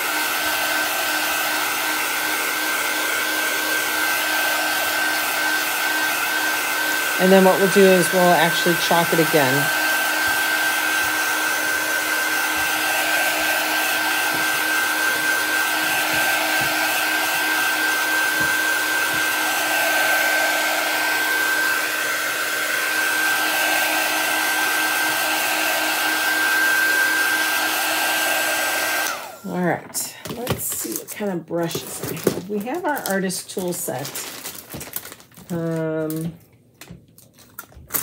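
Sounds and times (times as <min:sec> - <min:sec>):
heat tool blowing with whine: 0:00.0 - 0:29.6.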